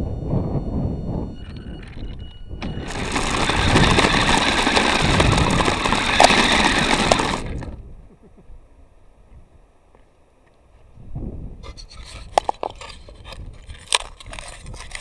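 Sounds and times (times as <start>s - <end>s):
toy car motor rattling and whining: 1.4s - 7.8s, 13.6s - 15.0s.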